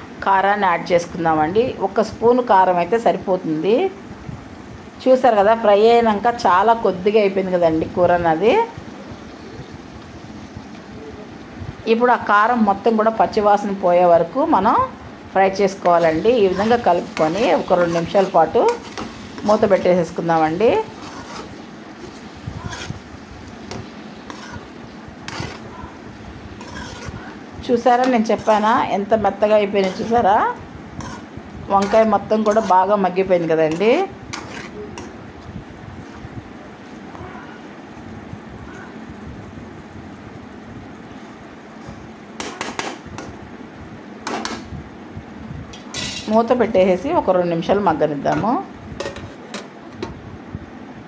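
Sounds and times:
steady low hum: 0.0s - 51.0s
metal spatula scraping a pan: 15.8s - 35.2s, 45.8s - 46.5s.

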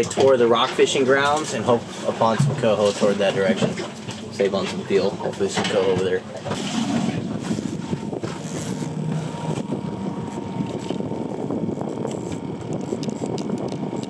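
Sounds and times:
rushing water: 0.0s - 11.0s
motorboat engine drone: 0.0s - 14.0s
wind: 0.0s - 14.0s
faint steady whine: 3.3s - 14.0s.

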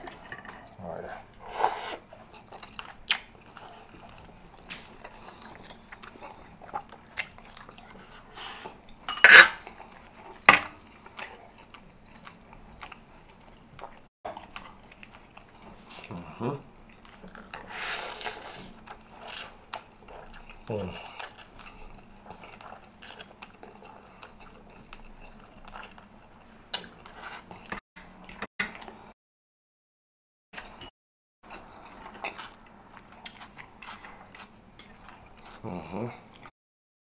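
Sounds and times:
slurping spaghetti: 0.7s - 4.3s, 17.1s - 20.4s.

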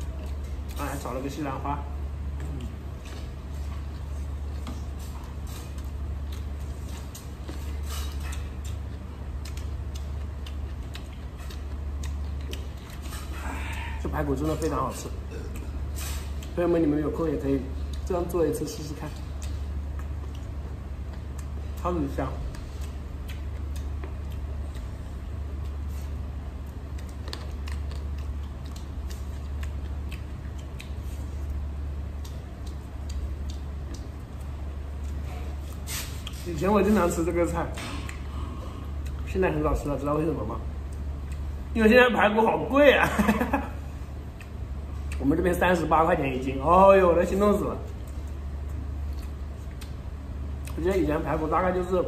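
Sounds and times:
chewing: 0.0s - 1.0s, 2.2s - 16.8s, 18.8s - 36.5s, 37.7s - 39.3s, 40.8s - 41.7s, 44.0s - 45.3s, 47.8s - 50.8s
steady low hum: 0.0s - 52.0s.

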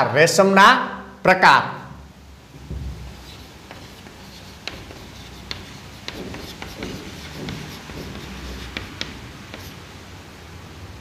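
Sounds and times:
chalk scratching: 3.2s - 9.9s
chalk tapping on board: 3.2s - 9.9s.

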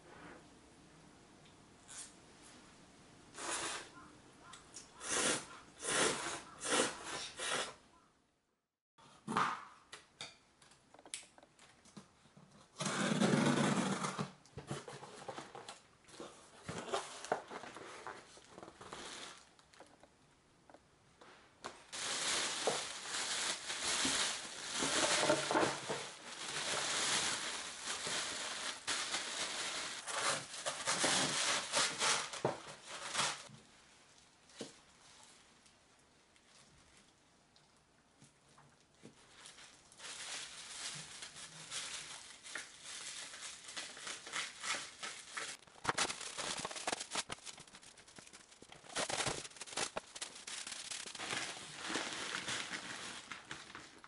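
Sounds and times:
plastic bags crinkling: 21.9s - 33.5s, 39.2s - 54.0s
cardboard box rustling: 44.9s - 53.9s.

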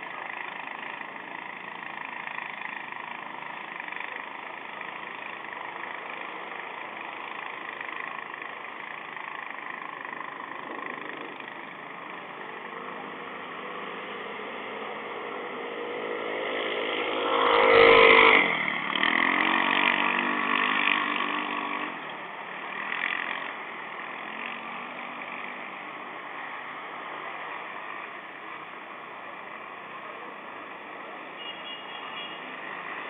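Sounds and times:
distant traffic hum: 0.0s - 33.0s
vehicle driving past: 12.8s - 22.0s.

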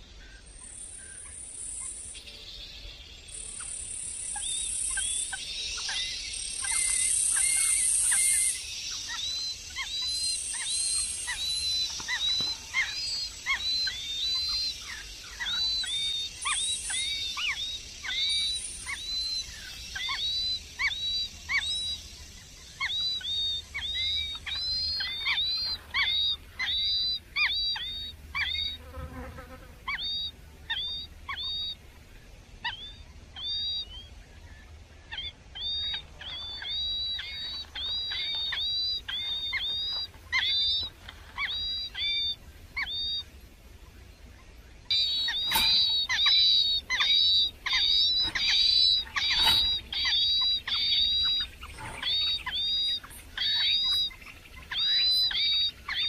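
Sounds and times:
high insect-like hiss: 0.8s - 30.6s
nestlings chirping: 3.3s - 31.8s, 35.1s - 43.4s, 44.8s - 56.0s.

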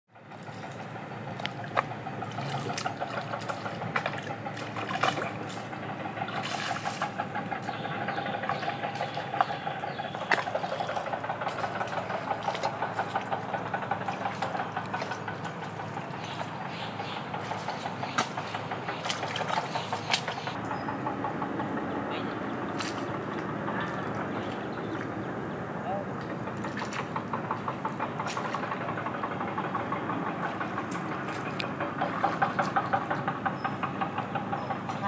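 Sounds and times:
bare feet squelching in mud: 0.3s - 7.8s, 8.5s - 20.6s, 22.4s - 25.2s, 26.2s - 28.7s, 30.4s - 33.2s.

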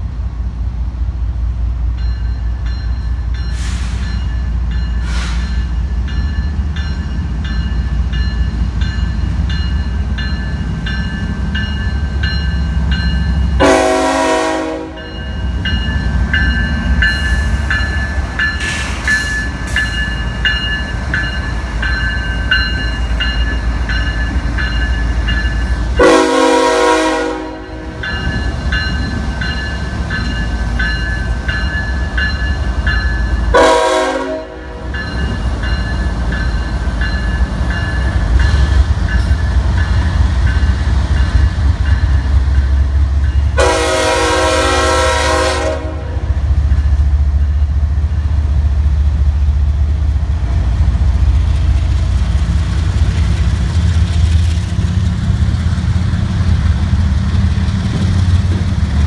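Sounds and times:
diesel locomotive engine rumble: 0.0s - 59.0s
locomotive horn chord blasts: 13.6s - 15.2s, 26.0s - 27.9s, 33.5s - 34.8s, 43.6s - 46.4s.

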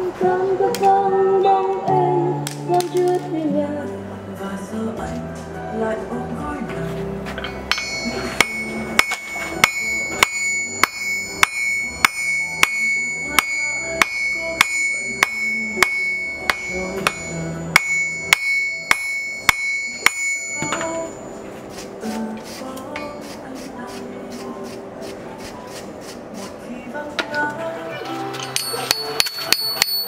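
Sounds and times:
background music: 0.0s - 30.0s
hammer blows ringing on anvil: 7.5s - 21.4s, 28.5s - 30.0s.

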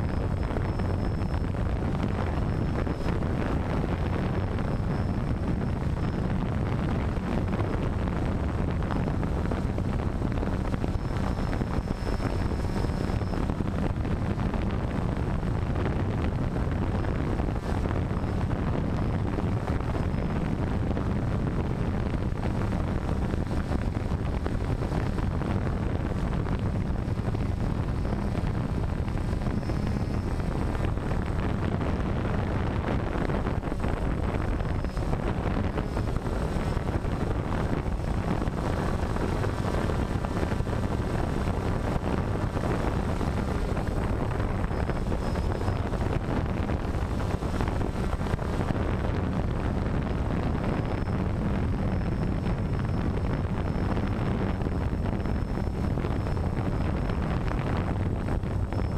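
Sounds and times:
drone motors and propellers: 0.0s - 58.9s
wind rushing over microphone: 0.0s - 58.9s.

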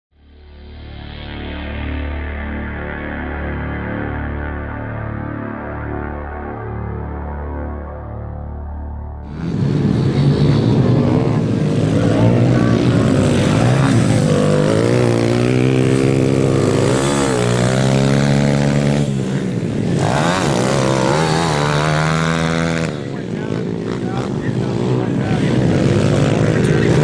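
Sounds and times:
dirt bike engines revving: 9.3s - 27.0s.

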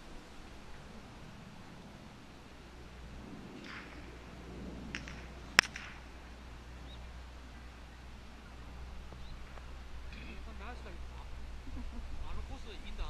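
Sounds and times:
golf club striking ball: 3.6s - 6.8s.

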